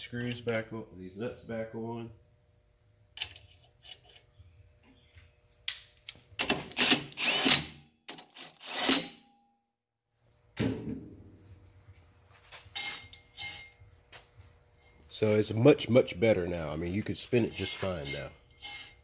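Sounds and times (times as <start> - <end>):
cordless drill spinning nuts: 6.8 - 7.7, 8.6 - 9.0, 18.6 - 19.0.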